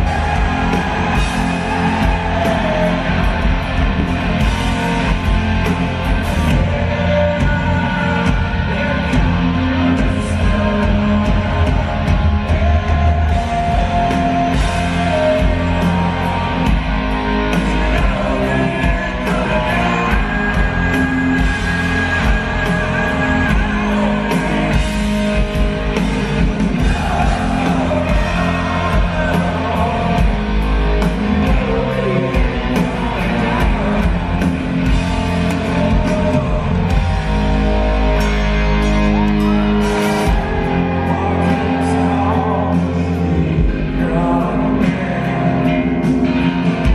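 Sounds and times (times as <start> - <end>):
man singing: 0.0 - 38.4, 39.1 - 46.9
bass: 0.0 - 46.9
distorted electric guitars: 0.0 - 46.9
drums: 0.0 - 46.9.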